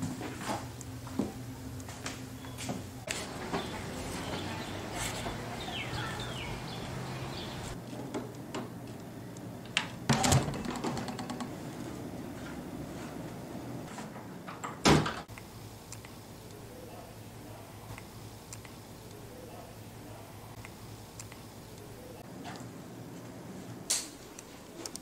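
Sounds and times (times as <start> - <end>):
door banging shut: 10.1 - 11.4, 14.6 - 15.3
door knock and rattle: 10.1 - 11.5.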